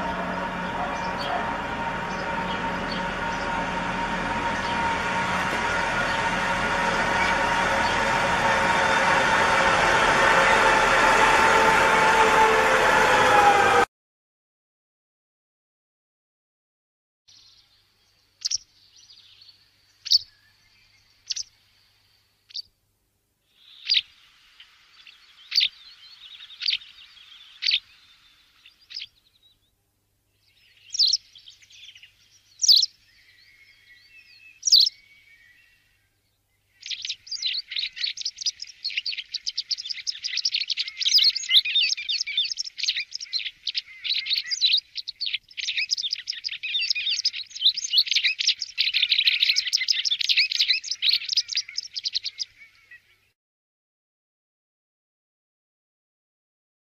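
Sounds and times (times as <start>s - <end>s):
fast twittering birdsong: 0.0s - 10.8s, 17.3s - 22.7s, 23.5s - 29.7s, 30.4s - 53.3s
wagtail calling: 0.0s - 11.2s, 36.8s - 53.0s.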